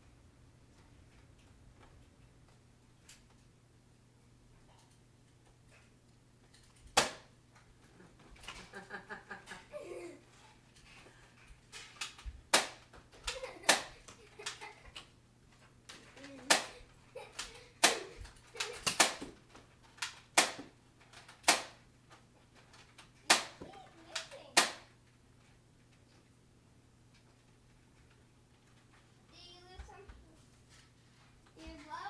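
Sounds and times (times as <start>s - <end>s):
darts smacking surfaces: 6.9s - 7.3s, 12.0s - 14.2s, 16.4s - 16.8s, 17.8s - 19.4s, 20.0s - 20.8s, 21.4s - 21.8s, 23.3s - 23.7s
foam dart blasters firing: 7.0s - 7.3s, 17.8s - 19.3s, 23.3s - 24.9s.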